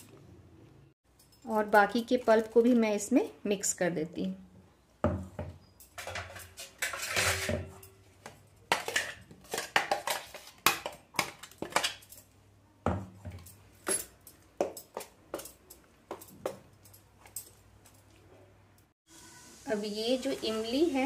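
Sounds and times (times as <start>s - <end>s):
steel jar clinking on steel plate: 5.8s - 8.0s.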